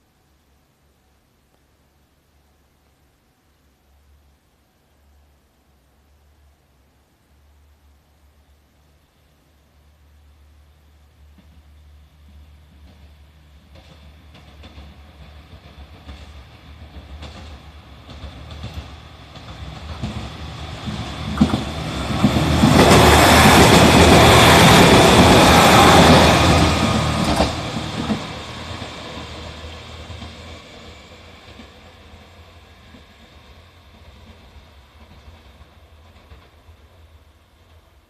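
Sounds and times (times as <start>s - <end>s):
diesel train passing: 10.1s - 38.0s.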